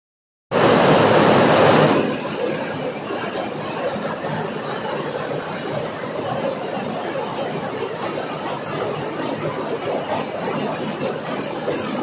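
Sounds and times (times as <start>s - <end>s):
heavy rain pouring: 0.6s - 3.8s.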